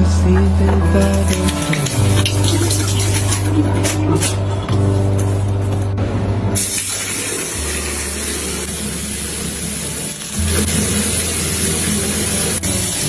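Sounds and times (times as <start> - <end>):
background music: 0.0 - 13.0
water running into bathtub: 1.3 - 4.4, 6.6 - 13.0.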